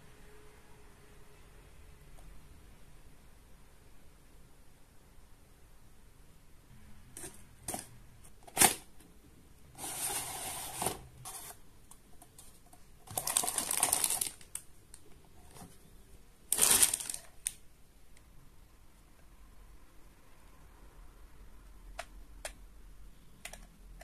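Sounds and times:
cardboard scraping and rustling: 9.8s - 11.6s.

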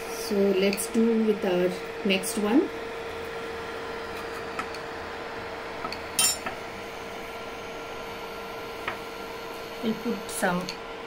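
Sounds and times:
steady background hum: 0.0s - 11.0s
utensils clinking on cookware: 6.2s - 6.5s.

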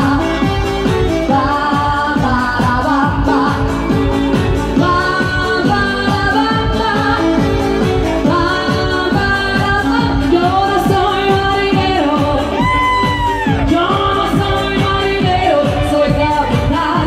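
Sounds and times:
electronic dance beat: 0.0s - 17.0s
woman singing: 0.0s - 17.0s.

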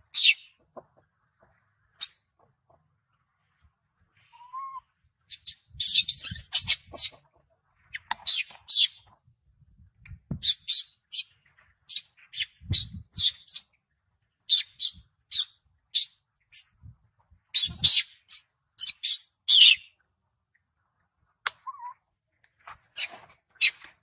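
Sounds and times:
macaque squeaking: 4.4s - 7.2s.

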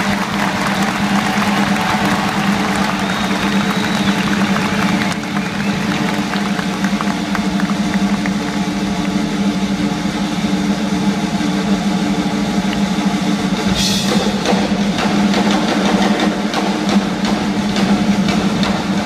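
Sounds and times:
live band music: 13.6s - 14.8s
cymbal crash: 13.6s - 15.3s.

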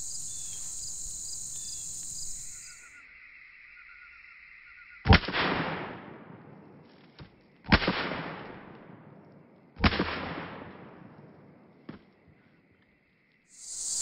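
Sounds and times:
gunshot echo: 5.1s - 6.8s, 7.7s - 9.2s, 9.8s - 11.3s
pistol shots: 7.7s - 9.0s, 9.8s - 11.1s.

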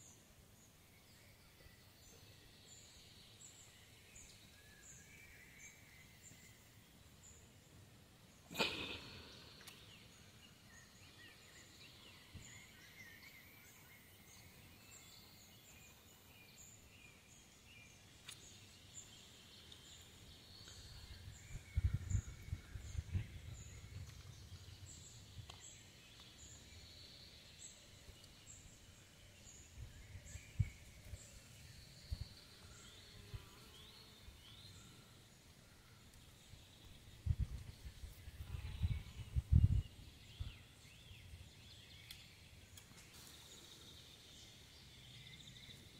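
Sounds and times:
birds calling: 8.5s - 11.7s.

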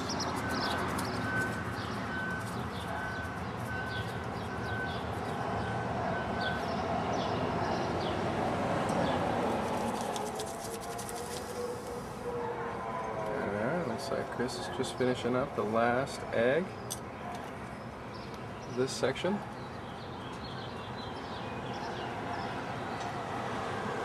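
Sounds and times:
birds chirping: 0.0s - 8.3s, 13.4s - 23.4s
distant traffic hum: 0.0s - 24.0s.

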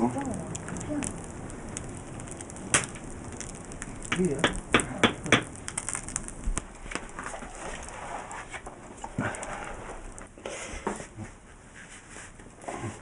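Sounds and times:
sharp knocks of hard material: 4.1s - 5.5s.

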